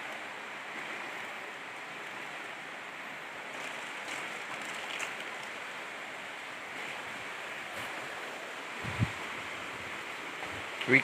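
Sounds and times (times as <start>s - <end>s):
river water rushing: 0.0s - 11.0s.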